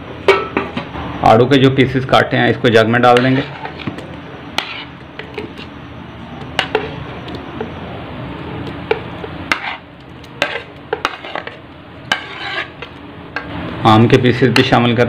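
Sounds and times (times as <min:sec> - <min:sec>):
spoon scraping ceramic plate: 0:03.1 - 0:03.9, 0:04.5 - 0:05.8, 0:08.9 - 0:09.8, 0:10.4 - 0:13.0.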